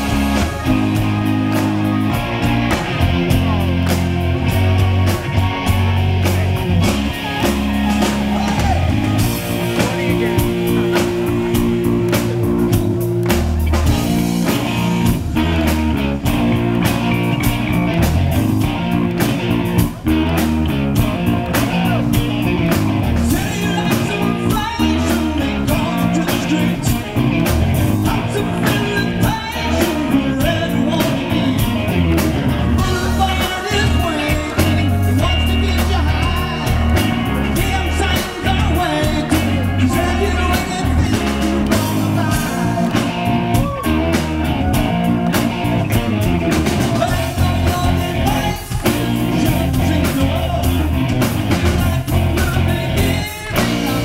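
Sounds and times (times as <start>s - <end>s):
bass guitar: 0.0s - 54.0s
drum kit: 0.0s - 54.0s
electric guitar: 0.0s - 54.0s
man singing: 6.2s - 13.0s, 21.0s - 45.0s, 45.6s - 54.0s.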